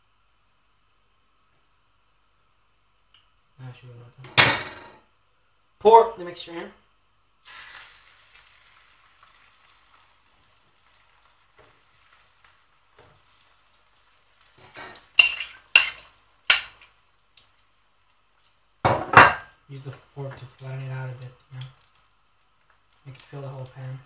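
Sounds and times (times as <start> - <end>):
egg sizzling in frying pan: 7.4 - 24.0.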